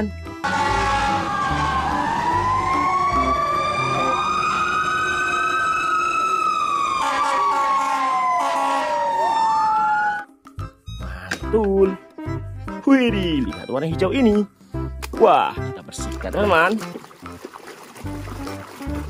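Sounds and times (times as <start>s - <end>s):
fire engine sirens wailing: 0.4s - 10.3s.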